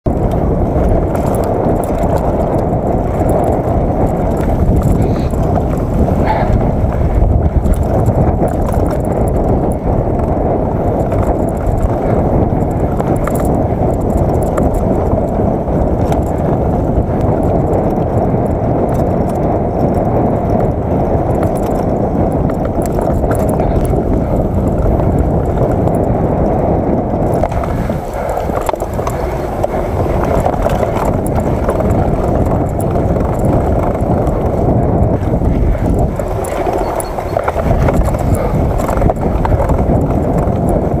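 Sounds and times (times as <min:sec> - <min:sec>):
bike rattling and knocking: 0:00.0 - 0:41.0
wind and tyres rumbling on trail: 0:00.0 - 0:41.0.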